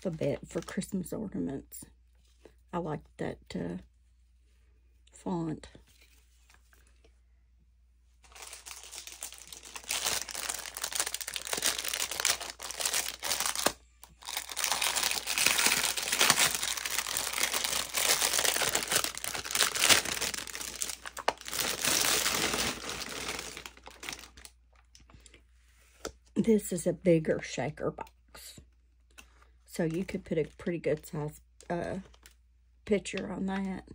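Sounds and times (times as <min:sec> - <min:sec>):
plastic bag crinkling: 0:08.2 - 0:25.0, 0:31.9 - 0:32.4.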